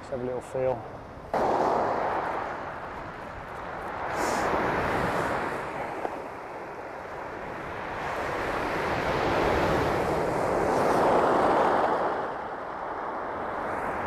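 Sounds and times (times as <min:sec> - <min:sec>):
waves breaking on shingle: 0:01.4 - 0:06.6.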